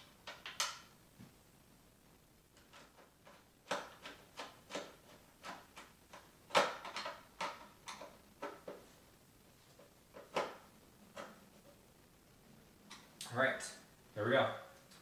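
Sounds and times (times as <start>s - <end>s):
screwdriver clicks and knocks on plastic: 2.6s - 8.8s, 10.2s - 11.4s.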